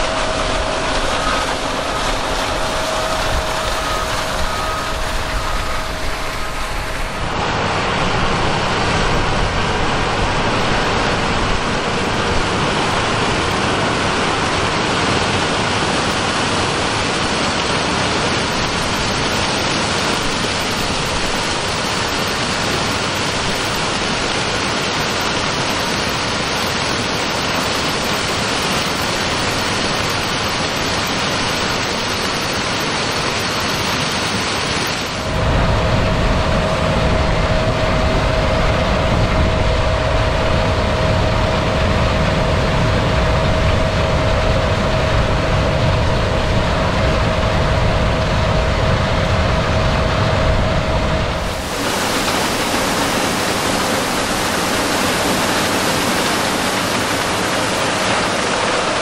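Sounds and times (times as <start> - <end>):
deep machine rumble: 0.0 - 13.4, 35.2 - 59.0
combine harvester rushing noise: 0.0 - 14.2, 51.0 - 59.0
steady machine whine: 0.0 - 59.0.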